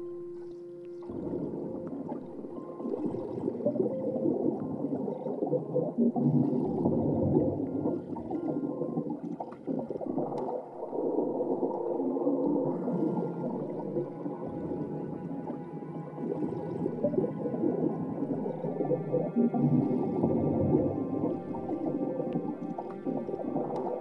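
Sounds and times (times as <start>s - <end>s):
faint steady tones: 0.0s - 24.0s
underwater gurgling and bubbling: 0.0s - 24.0s.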